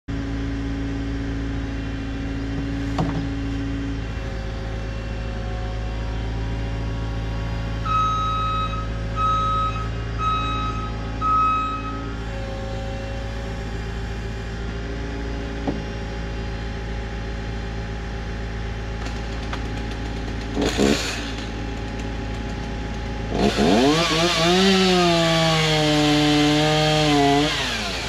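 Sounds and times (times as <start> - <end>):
heavy machine engine running: 0.1 - 28.0
backup alarm beeping: 7.8 - 12.2.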